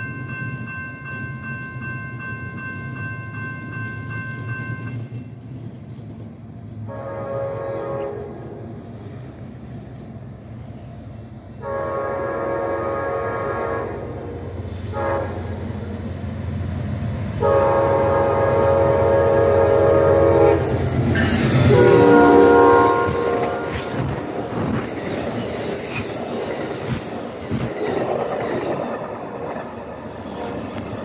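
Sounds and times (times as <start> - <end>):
train rumble: 0.0 - 31.0
train air horn blasts: 6.8 - 8.6, 11.6 - 15.7, 17.4 - 24.2.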